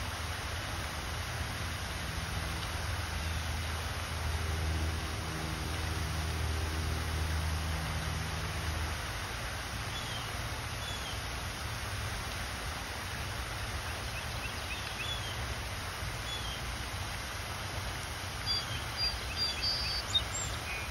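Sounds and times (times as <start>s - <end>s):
outdoor hiss and low rumble: 0.0s - 20.9s
small birds chirping: 13.9s - 15.4s, 18.4s - 20.9s.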